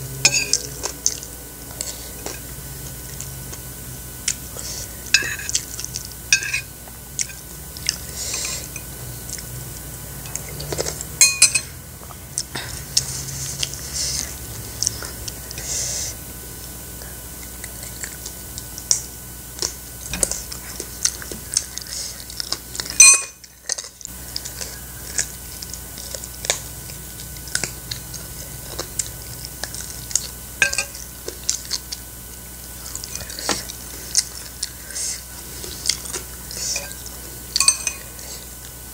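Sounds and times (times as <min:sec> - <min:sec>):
metal spoon clinking on plate: 0:00.3 - 0:00.6, 0:06.3 - 0:07.4, 0:11.2 - 0:11.7, 0:23.0 - 0:23.4, 0:30.6 - 0:31.0, 0:37.6 - 0:38.1
chewing: 0:00.5 - 0:06.2, 0:07.2 - 0:11.1, 0:17.0 - 0:38.8.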